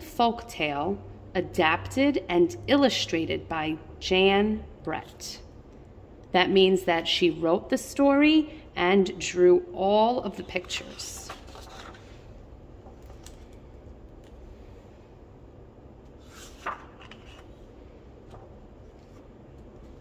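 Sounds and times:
steady low hum: 0:00.0 - 0:20.0
page flip: 0:10.5 - 0:12.2, 0:12.8 - 0:13.6, 0:16.0 - 0:20.0
paper rustling: 0:10.5 - 0:13.6, 0:16.0 - 0:20.0.

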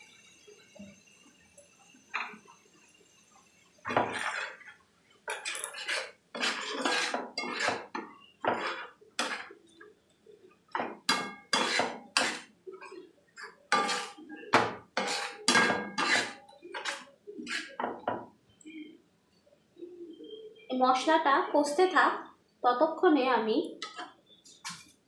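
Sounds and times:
paste frying in oil: 0:01.6 - 0:09.6, 0:11.2 - 0:12.6, 0:13.4 - 0:17.7
metal spatula scraping frying pan: 0:03.9 - 0:09.6, 0:10.8 - 0:18.0.

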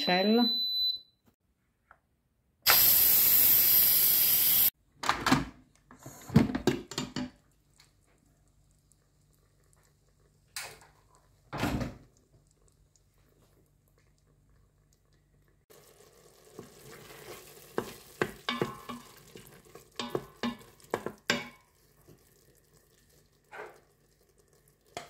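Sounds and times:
steam hissing from valve: 0:02.7 - 0:04.7.

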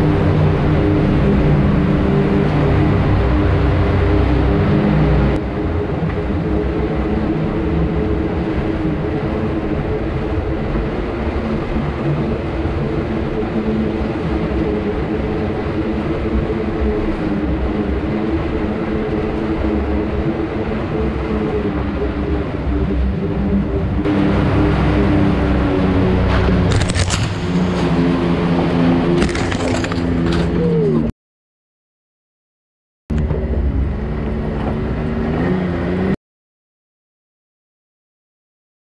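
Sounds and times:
utility vehicle engine running: 0:21.6 - 0:31.1
tyres rumbling over rough ground: 0:24.0 - 0:31.1.

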